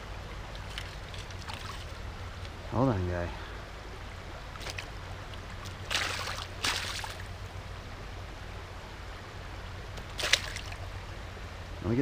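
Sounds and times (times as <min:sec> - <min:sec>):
river water running: 0:00.0 - 0:12.0
short water splashes: 0:00.5 - 0:02.1, 0:04.5 - 0:07.4, 0:09.9 - 0:10.9.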